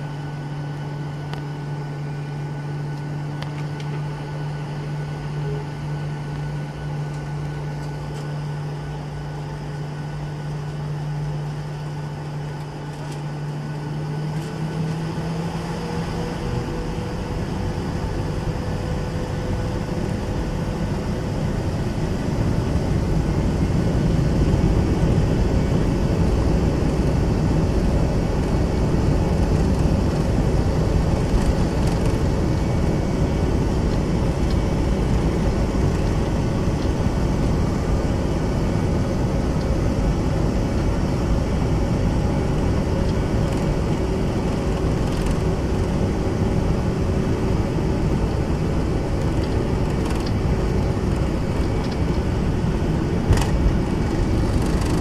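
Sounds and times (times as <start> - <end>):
airliner rolling on runway: 0.0 - 55.0
jet engines roaring in cabin: 0.0 - 55.0.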